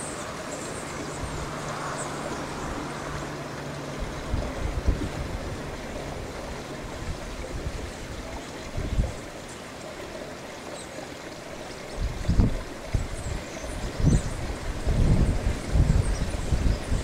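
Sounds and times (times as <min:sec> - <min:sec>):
wind buffeting on microphone: 0:00.0 - 0:09.4, 0:11.8 - 0:17.0.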